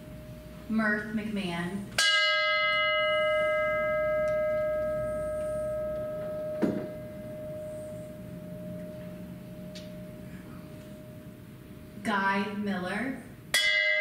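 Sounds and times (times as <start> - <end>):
bell ringing: 2.0 - 11.4
short knock: 6.6 - 6.9.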